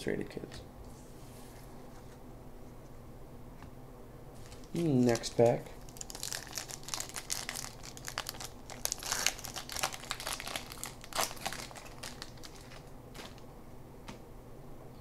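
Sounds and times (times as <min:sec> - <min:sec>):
plastic wrapper crinkling: 0:04.4 - 0:13.5.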